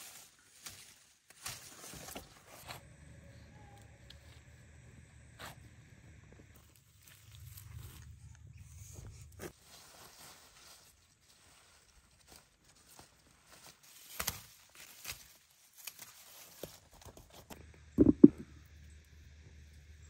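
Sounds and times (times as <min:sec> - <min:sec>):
dull thumps: 0:18.0 - 0:18.4.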